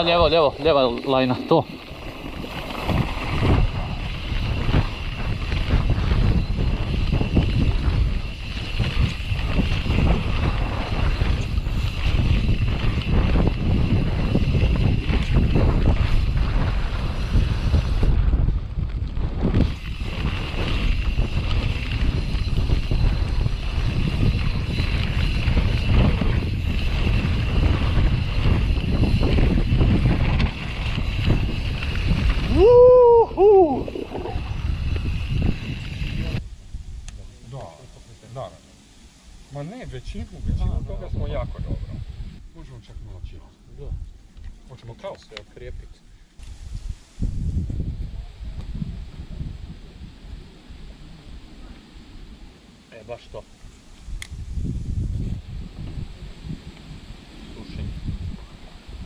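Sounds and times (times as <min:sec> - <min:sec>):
bike rattling over dirt trail: 0:00.0 - 0:36.5
wind noise on microphone: 0:00.0 - 0:44.7, 0:45.5 - 0:59.0.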